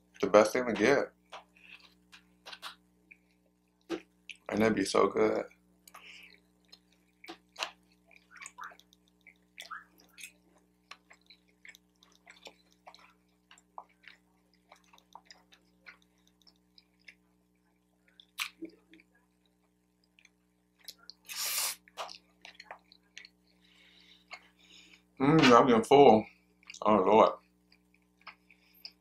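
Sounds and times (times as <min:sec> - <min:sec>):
wet chewing and lip smacks: 0:05.8 - 0:25.1, 0:26.5 - 0:26.8, 0:27.4 - 0:29.0
loud noodle slurp: 0:21.3 - 0:21.8.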